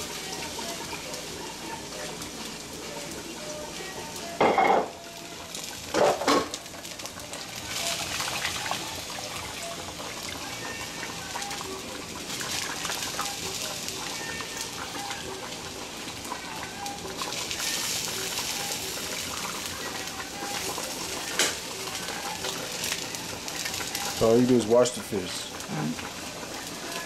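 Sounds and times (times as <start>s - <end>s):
liquid bubbling in a pot: 5.4s - 24.5s.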